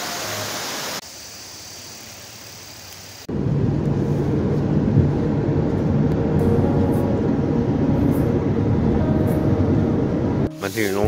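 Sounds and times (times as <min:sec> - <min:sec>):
soft rushing of water: 0:00.0 - 0:03.2
car engine and road rumble: 0:03.2 - 0:11.0.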